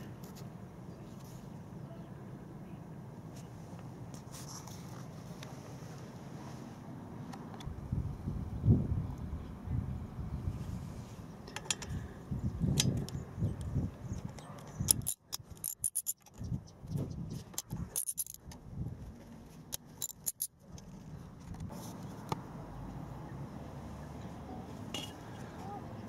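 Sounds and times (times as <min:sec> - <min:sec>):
metal tools clicking and tapping: 0:14.3 - 0:16.5, 0:17.5 - 0:18.5, 0:19.7 - 0:20.6.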